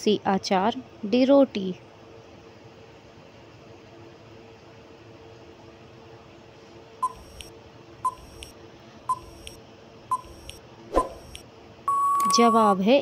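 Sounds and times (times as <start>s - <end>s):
short timer beeps: 7.0s - 7.5s, 8.1s - 8.5s, 9.1s - 12.8s.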